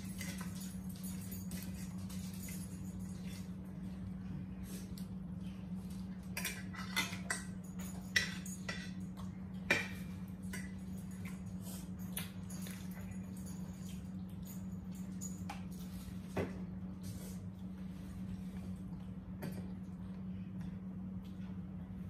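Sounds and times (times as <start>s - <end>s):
steady low hum: 0.0s - 22.0s
forks clinking on plates: 6.3s - 15.9s.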